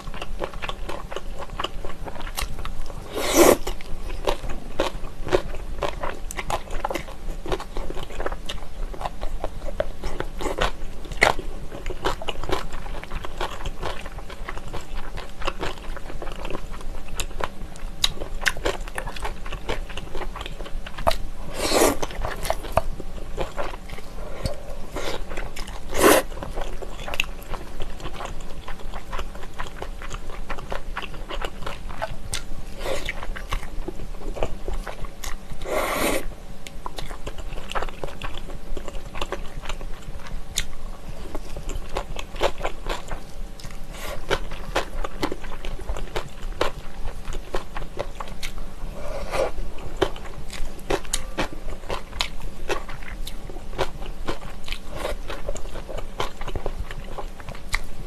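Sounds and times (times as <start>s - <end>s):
noodle slurps: 3.1s - 3.6s, 21.5s - 22.0s, 25.9s - 26.3s, 35.6s - 36.3s
wet chewing and mouth clicks: 50.0s - 57.9s.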